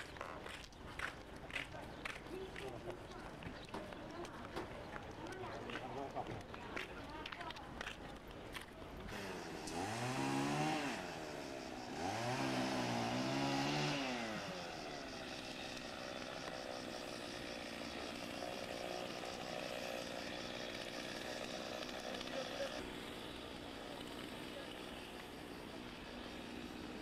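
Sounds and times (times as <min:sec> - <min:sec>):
chainsaw revving: 0:08.6 - 0:27.0.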